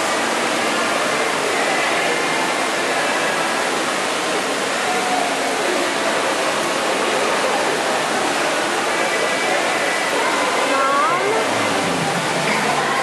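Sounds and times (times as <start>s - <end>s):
faint voices: 0.0s - 13.0s
steady rushing background noise: 7.6s - 13.0s.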